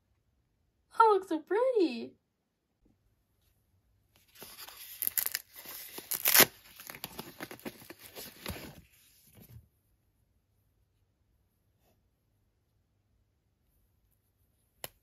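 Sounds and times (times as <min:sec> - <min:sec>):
plastic pouch tearing and crinkling: 0:04.3 - 0:08.8.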